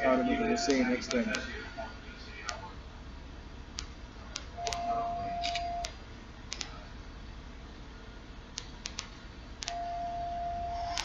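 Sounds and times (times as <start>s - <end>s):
steady test tone beep: 0.0s - 1.1s, 4.6s - 6.0s, 9.7s - 11.0s.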